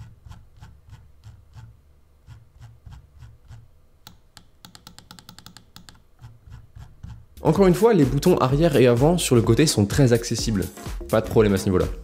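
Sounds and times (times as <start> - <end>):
computer mouse clicking: 0.0 - 7.2.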